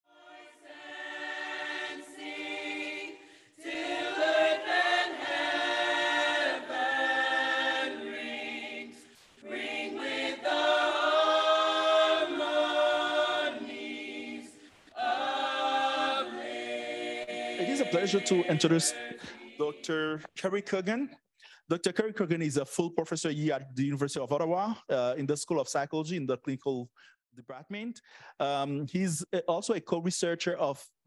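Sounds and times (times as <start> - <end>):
choir singing held chords: 0.1 - 20.2.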